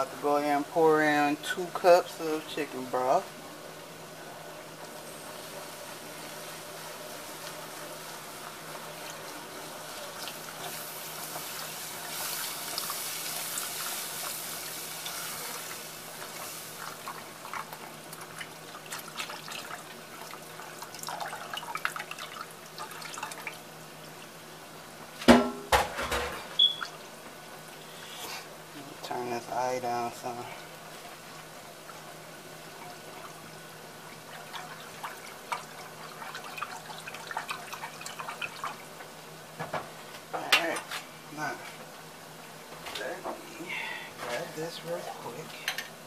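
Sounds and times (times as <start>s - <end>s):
liquid rushing and hissing in pan: 2.8s - 23.7s, 30.0s - 40.1s.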